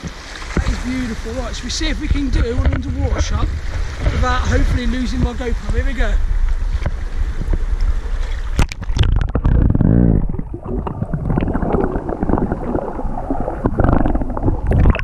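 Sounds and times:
muffled underwater churning: 0.0s - 15.0s
underwater knocks: 2.0s - 15.0s
camera splashing into water: 8.3s - 10.2s.

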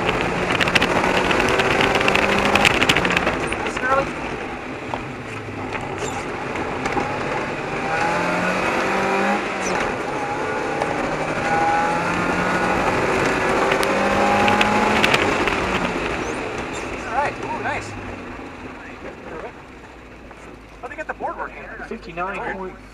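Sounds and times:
wind noise: 0.0s - 17.5s
car engine accelerating: 0.0s - 22.9s.

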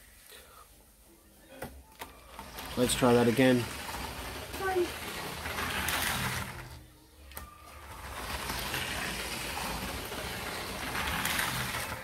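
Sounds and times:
toy train motor running: 2.2s - 6.8s, 7.4s - 12.0s.

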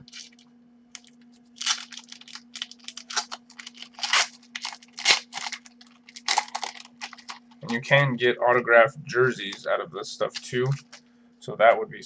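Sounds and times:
wrapper crinkling and tearing: 0.0s - 7.8s, 10.3s - 11.0s.

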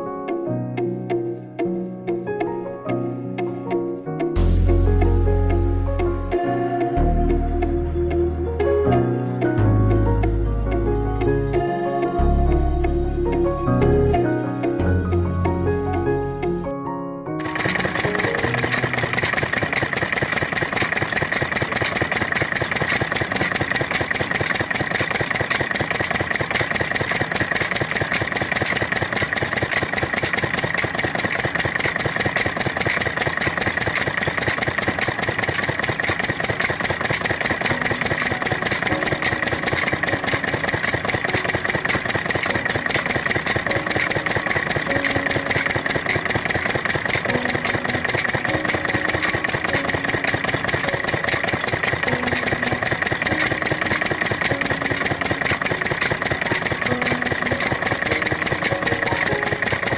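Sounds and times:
model engine chugging: 17.4s - 59.9s.

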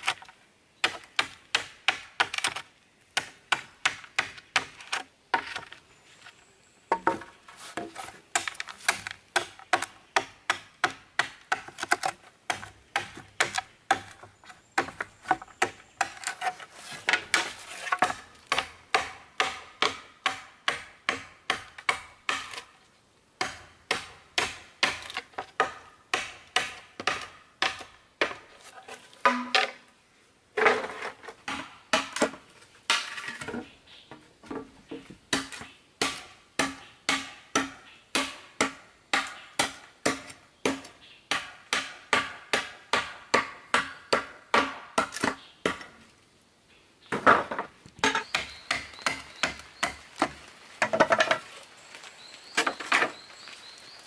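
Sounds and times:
knife chopping bamboo: 7.1s - 14.2s, 48.0s - 51.0s.

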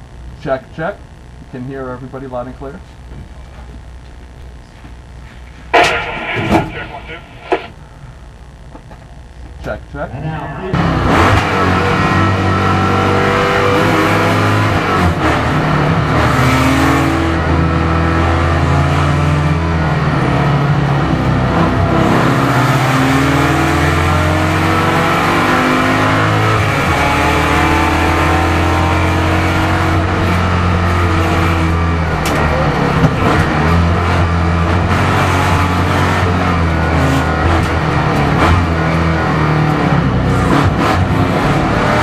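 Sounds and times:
race car engine running: 10.8s - 42.0s.

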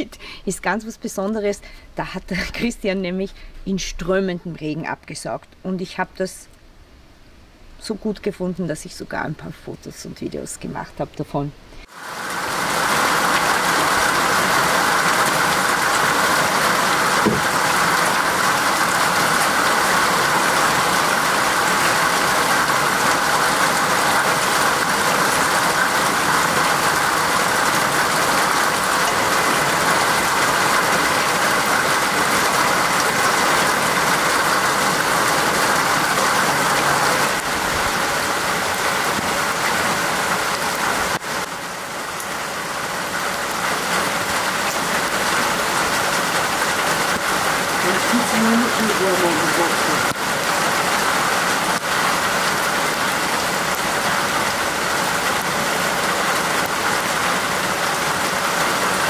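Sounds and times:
heavy rain on water: 11.8s - 59.0s.

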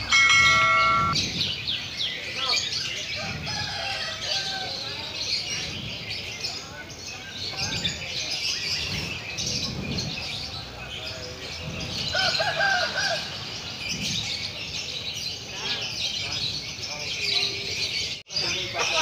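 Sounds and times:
lovebirds chirping: 0.0s - 2.7s
murmur of voices: 1.8s - 19.0s.

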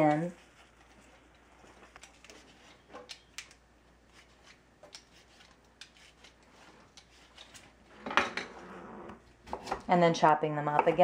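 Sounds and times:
peeler scraping beet skin: 4.0s - 7.8s.

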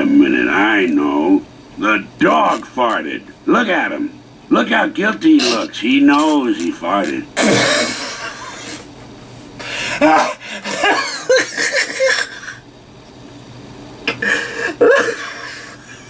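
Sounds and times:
man laughing stifled: 7.4s - 8.9s, 9.6s - 12.6s, 14.1s - 16.0s.

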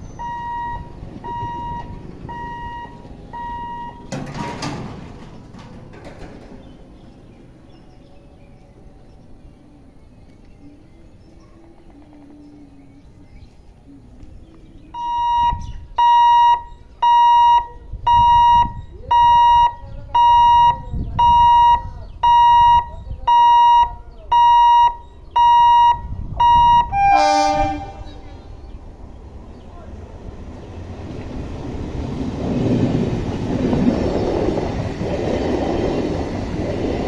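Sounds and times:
level crossing warning beeps: 0.0s - 4.2s, 14.9s - 27.6s
train horn blast: 26.5s - 28.4s.

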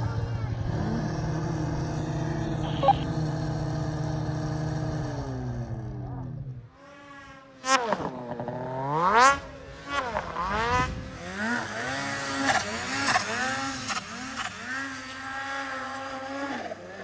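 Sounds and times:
snowmobile engine revving: 0.0s - 17.0s.

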